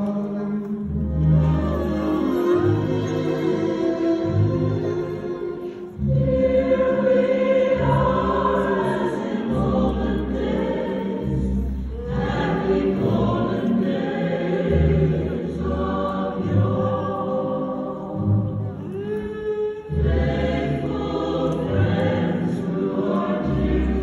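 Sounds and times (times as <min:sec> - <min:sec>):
large choir singing: 0:00.0 - 0:24.0.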